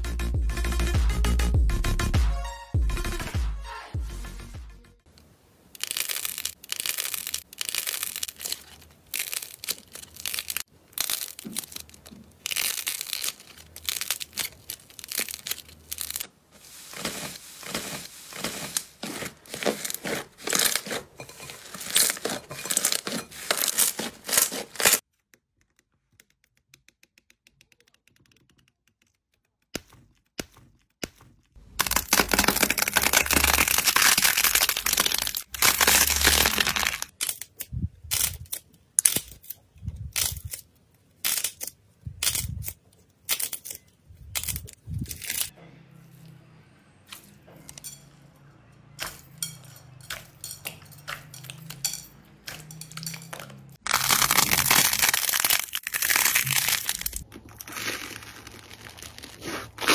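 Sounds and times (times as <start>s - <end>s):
slime crackling and tearing: 5.8s - 25.1s, 31.8s - 39.4s, 53.8s - 59.9s.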